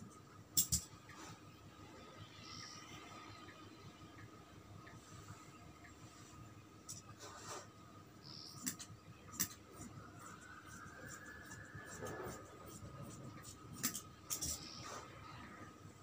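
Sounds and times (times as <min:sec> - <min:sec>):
scissors blades scraping cloth: 0:08.6 - 0:14.9.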